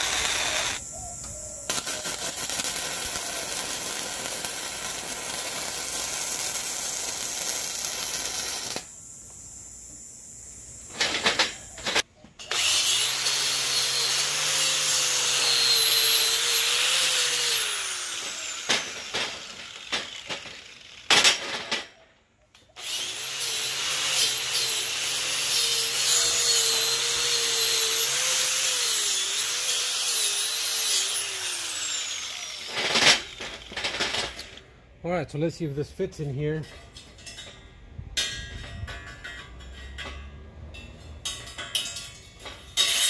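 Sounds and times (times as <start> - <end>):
angle grinder on metal: 0.0 - 0.8, 1.7 - 8.9, 10.9 - 21.7, 22.8 - 34.6, 42.8 - 43.0.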